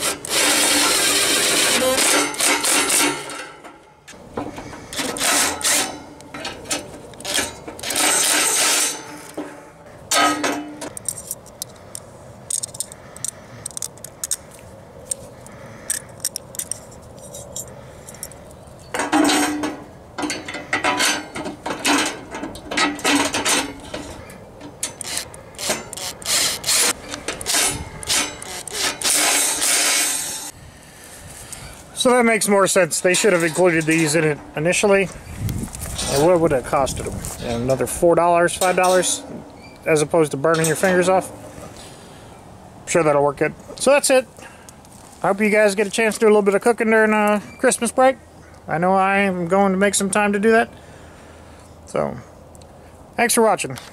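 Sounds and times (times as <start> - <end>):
metal scraping and rattling on grill: 0.0 - 11.5, 18.8 - 30.6, 32.0 - 35.2, 35.8 - 42.1.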